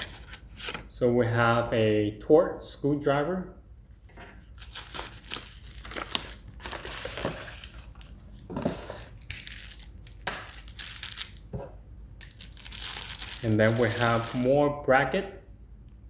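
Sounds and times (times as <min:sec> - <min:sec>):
cardboard packaging rustling: 0:00.0 - 0:00.8, 0:04.6 - 0:09.9, 0:10.5 - 0:11.4, 0:12.2 - 0:14.5.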